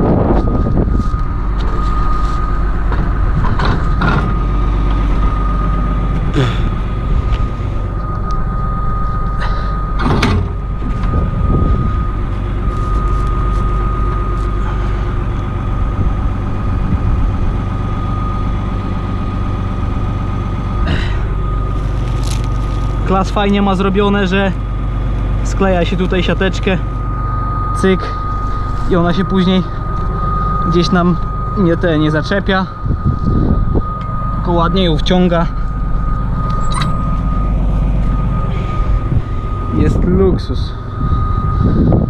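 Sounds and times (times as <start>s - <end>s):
thin high whine: 0.0s - 24.6s, 25.6s - 42.0s
tractor engine idling: 0.0s - 42.0s
metal knocks and clanks: 2.9s - 5.0s, 10.0s - 11.2s.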